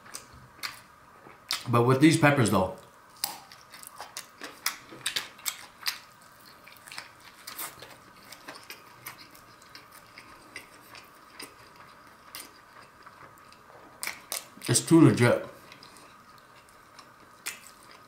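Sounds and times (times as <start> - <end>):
close-up chewing: 3.2 - 14.8, 15.5 - 18.0.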